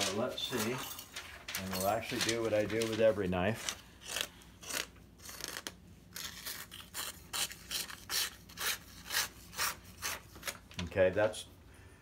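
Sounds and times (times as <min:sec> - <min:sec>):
knife rasping on paper: 0:03.6 - 0:10.6.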